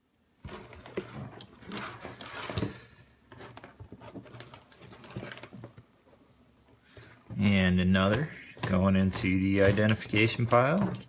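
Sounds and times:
wires rustling and clicking: 0:00.4 - 0:07.5.

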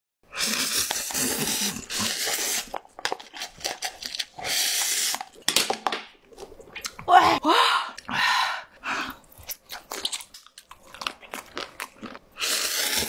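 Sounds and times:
noodles being slurped: 0:00.3 - 0:05.5, 0:09.0 - 0:13.0
wet chewing clicks: 0:09.1 - 0:13.0.

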